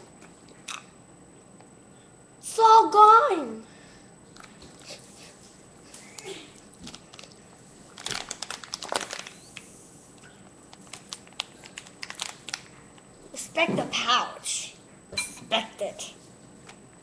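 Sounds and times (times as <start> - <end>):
foil drink pouch crinkling: 6.8 - 9.6, 10.7 - 12.7.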